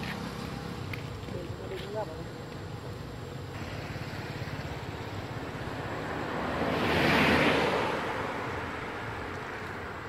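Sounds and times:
steady low hum: 0:00.0 - 0:06.8
vehicle passing by: 0:03.5 - 0:10.0.

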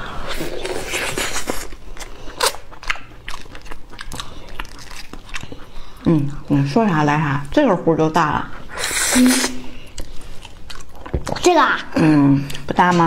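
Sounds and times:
chewing with wet mouth noises: 0:00.3 - 0:06.8, 0:09.8 - 0:13.0.

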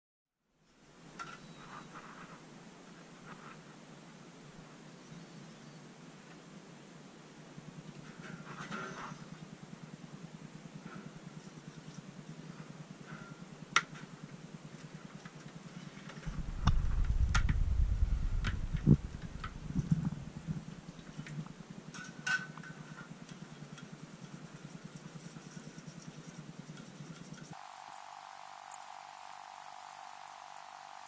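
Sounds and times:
faint background hum: 0:00.4 - 0:31.0
low rumble: 0:16.3 - 0:20.7.

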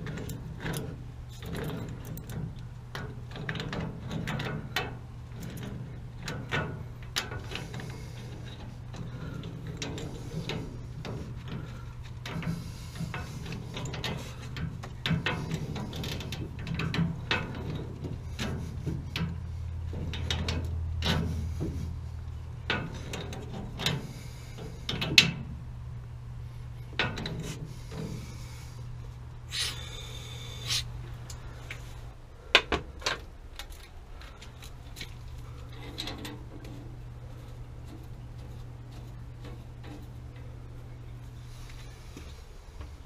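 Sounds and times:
steady low hum: 0:00.0 - 0:43.0
rasping noise: 0:29.5 - 0:31.0.

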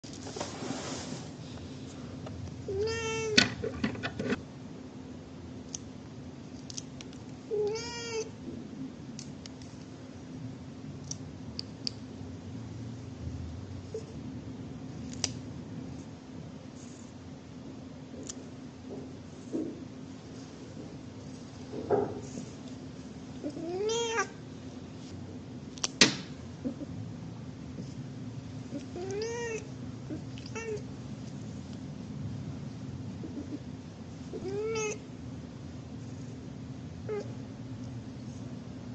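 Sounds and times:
cat meowing: 0:02.7 - 0:03.5, 0:07.5 - 0:08.4, 0:23.4 - 0:24.4, 0:28.7 - 0:30.8, 0:34.3 - 0:35.0.

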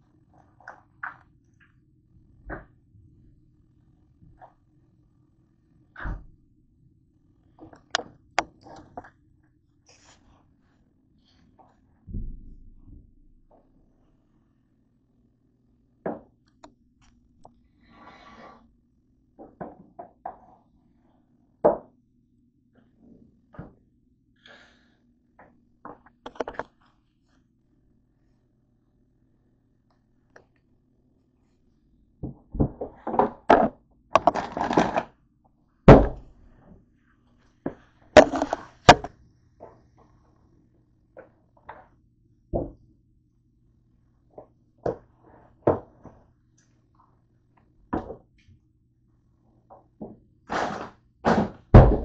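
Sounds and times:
faint steady hum: 0:00.0 - 0:52.0.

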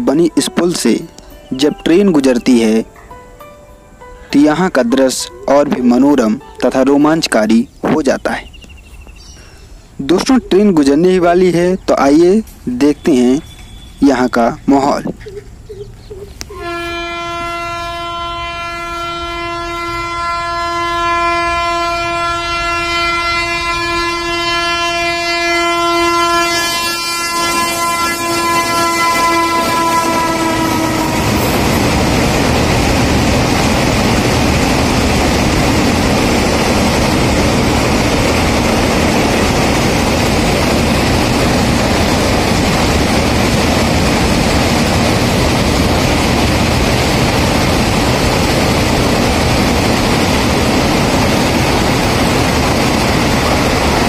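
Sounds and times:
train wagons rumbling over bridge: 0:00.0 - 0:54.0
train horn long blast: 0:16.4 - 0:31.8.

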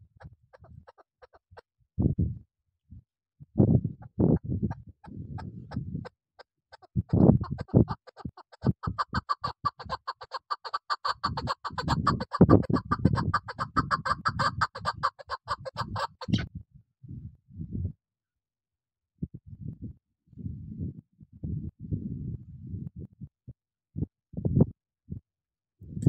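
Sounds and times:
partridge clucking call: 0:00.5 - 0:01.6, 0:06.7 - 0:16.4.

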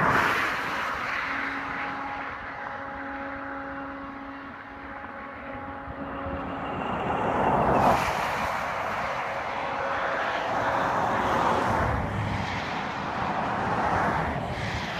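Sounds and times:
rush of noise: 0:00.0 - 0:14.9
distant train horn blasts: 0:00.4 - 0:12.1.

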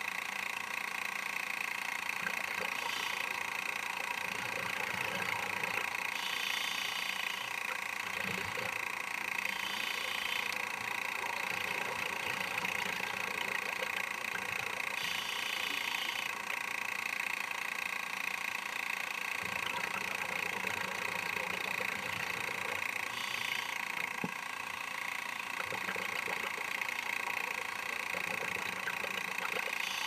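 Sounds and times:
camera mechanical hum: 0:00.0 - 0:30.0
underwater bubbling: 0:07.6 - 0:08.8, 0:10.4 - 0:15.0, 0:19.4 - 0:23.0, 0:25.5 - 0:29.8.

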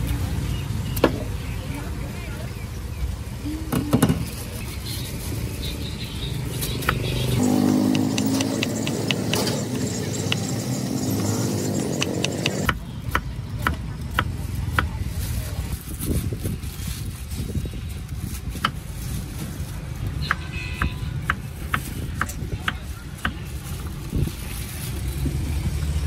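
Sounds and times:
motorbike engine passing: 0:07.2 - 0:12.7.

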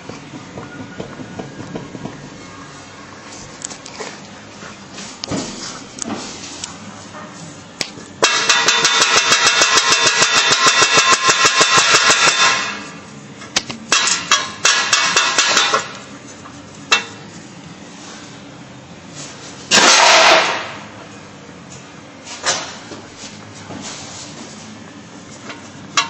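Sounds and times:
loud metal clatter: 0:08.2 - 0:13.0, 0:13.9 - 0:16.0, 0:19.7 - 0:20.8.

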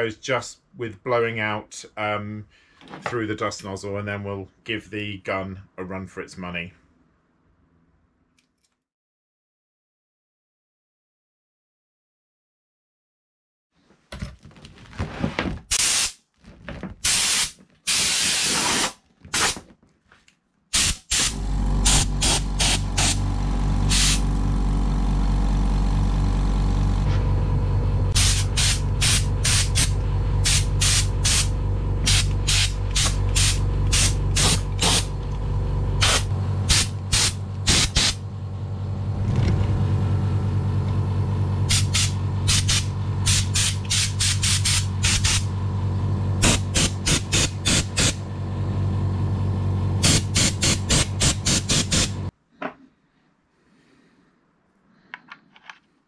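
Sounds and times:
short sharp hisses: 0:15.7 - 0:16.2, 0:17.0 - 0:19.6, 0:20.7 - 0:23.2, 0:23.9 - 0:24.2, 0:28.2 - 0:31.5, 0:41.7 - 0:45.4
air compressor humming: 0:17.0 - 0:19.6, 0:20.8 - 0:52.3.

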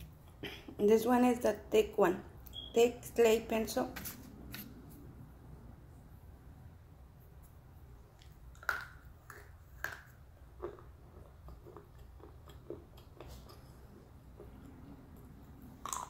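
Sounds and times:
person crunching and chewing: 0:08.2 - 0:14.5, 0:15.7 - 0:16.0.

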